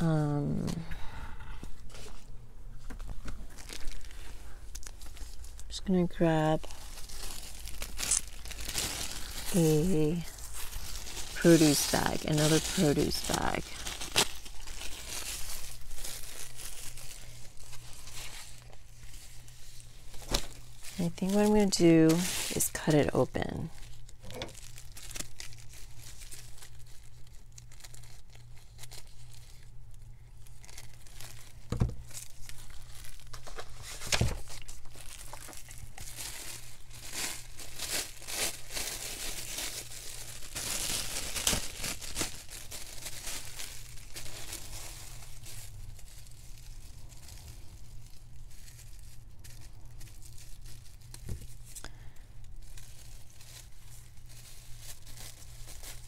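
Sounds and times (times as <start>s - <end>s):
plastic bag crinkling: 1.8s - 56.0s.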